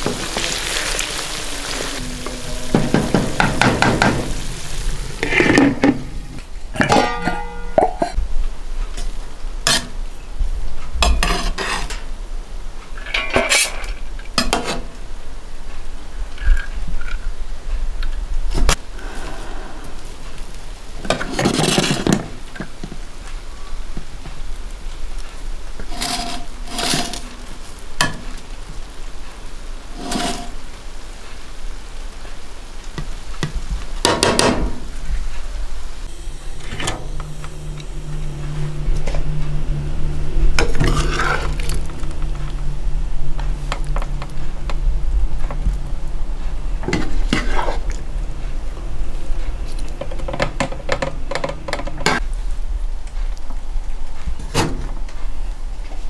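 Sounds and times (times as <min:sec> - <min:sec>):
skimmer scraping steel pot: 0:00.0 - 0:08.2, 0:25.8 - 0:28.2, 0:29.9 - 0:30.6, 0:36.1 - 0:44.8
steady low hum: 0:35.1 - 0:50.4.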